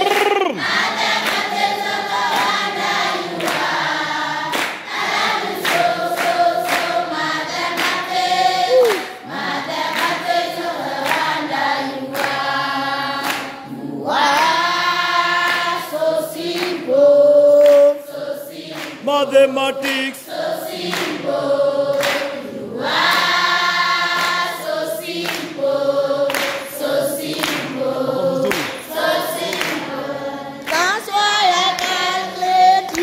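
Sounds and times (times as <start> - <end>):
hand-clapping: 0.0 - 3.8, 4.4 - 7.0, 7.7 - 11.5, 12.1 - 12.5, 13.2 - 13.6, 14.2 - 14.7, 15.3 - 16.9, 17.5 - 19.0, 19.8 - 21.3, 21.9 - 22.4, 23.0 - 25.7, 26.3 - 27.8, 28.4 - 29.9, 30.6 - 33.0
children singing in unison: 0.2 - 33.0.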